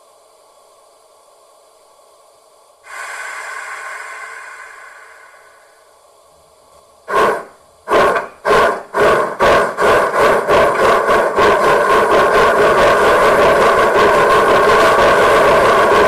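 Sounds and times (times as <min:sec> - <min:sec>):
model steam locomotive chuffing: 0:02.9 - 0:05.9, 0:07.0 - 0:16.0.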